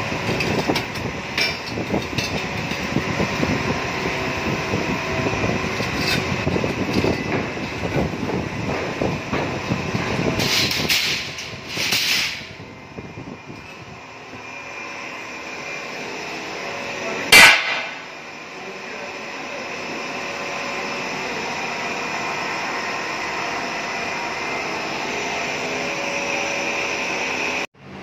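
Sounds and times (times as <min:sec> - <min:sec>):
steady mechanical noise: 0:00.0 - 0:28.0
sharp loud bang: 0:17.3 - 0:18.0.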